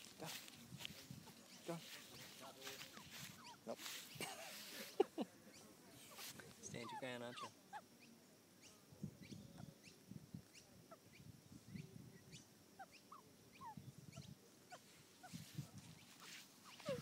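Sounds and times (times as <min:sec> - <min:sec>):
young magpie chirping: 0:01.4 - 0:04.2, 0:06.7 - 0:11.2, 0:12.3 - 0:17.0.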